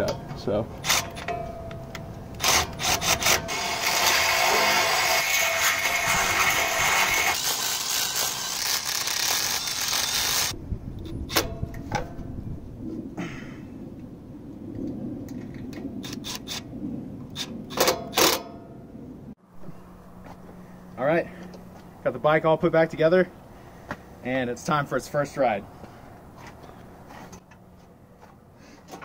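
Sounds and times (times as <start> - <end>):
cordless driver running: 5.8 - 10.6.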